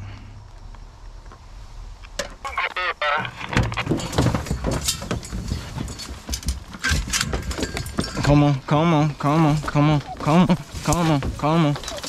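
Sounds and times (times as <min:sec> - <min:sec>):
metal dog box latches clanking: 0:04.0 - 0:08.3
dogs whining: 0:11.8 - 0:12.0.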